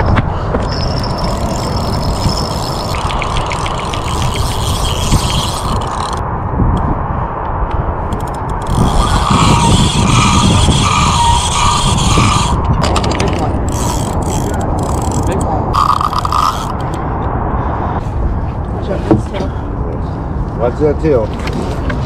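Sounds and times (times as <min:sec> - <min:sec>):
wind buffeting microphone: 0:00.0 - 0:22.0
fishing reel ticking and whirring: 0:00.7 - 0:06.2, 0:08.2 - 0:17.0.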